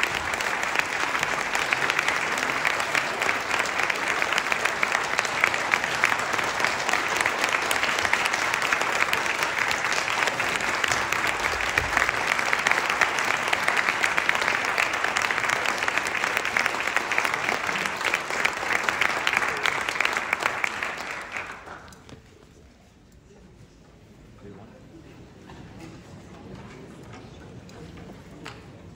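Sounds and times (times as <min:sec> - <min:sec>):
audience applauding: 0:00.0 - 0:22.3.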